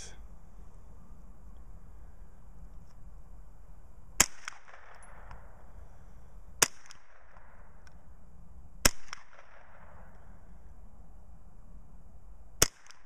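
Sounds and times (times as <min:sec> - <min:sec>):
rifle shots with echo: 0:04.2 - 0:05.6, 0:06.6 - 0:07.8, 0:08.8 - 0:10.1, 0:12.6 - 0:13.0.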